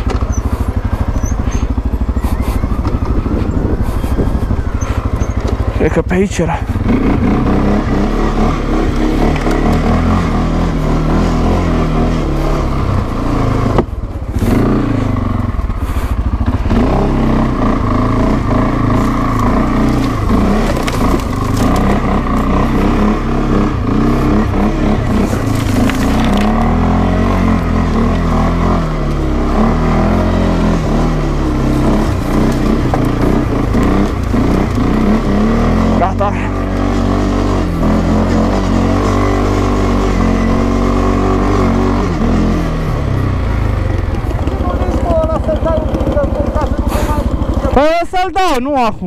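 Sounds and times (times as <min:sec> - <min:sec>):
atv engine revving: 0:00.0 - 0:49.0.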